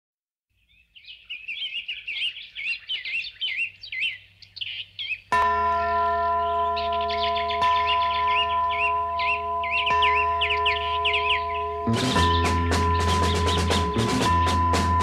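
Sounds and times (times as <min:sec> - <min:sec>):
birds chirping: 0:00.5 - 0:15.0
bell tolling: 0:05.4 - 0:15.0.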